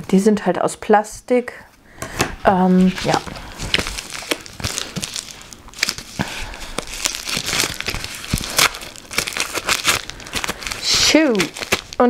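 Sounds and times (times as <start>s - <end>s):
plastic film crinkling: 2.6s - 12.0s.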